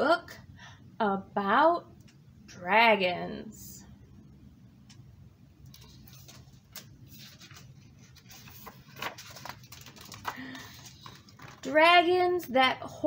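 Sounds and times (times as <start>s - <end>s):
paper pages turning: 5.7s - 11.8s.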